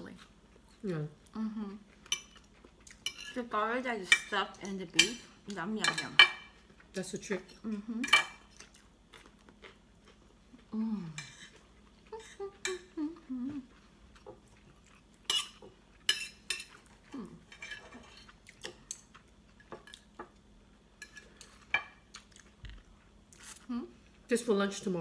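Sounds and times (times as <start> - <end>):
person humming mmm: 1.3 - 1.9, 7.6 - 8.1, 10.6 - 13.9, 17.0 - 17.4.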